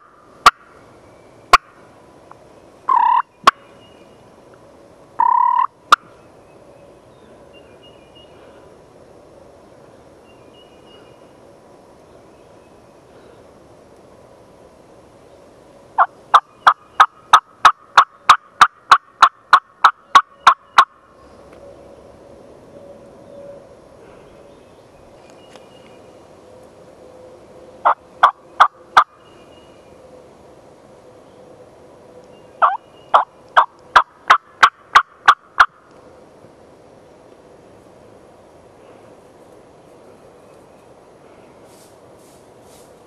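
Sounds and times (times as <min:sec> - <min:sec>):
turkey yelps: 0:02.9 - 0:03.2, 0:05.2 - 0:06.0, 0:32.6 - 0:35.7.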